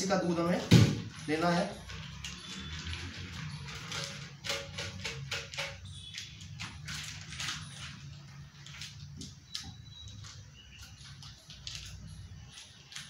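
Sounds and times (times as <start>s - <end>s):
kitchen containers clicking on table: 4.0s - 6.8s.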